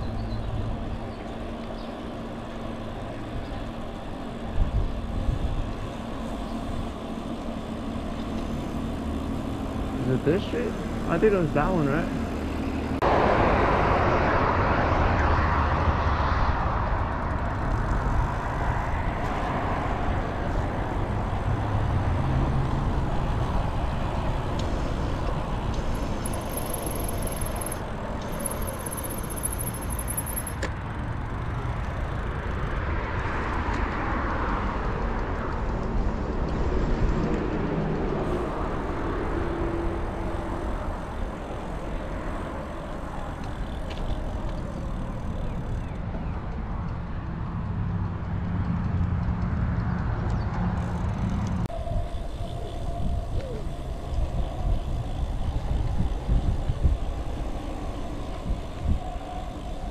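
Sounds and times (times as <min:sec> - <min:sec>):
road traffic: 0:00.0 - 0:59.9
wind rushing over microphone: 0:51.3 - 0:59.9.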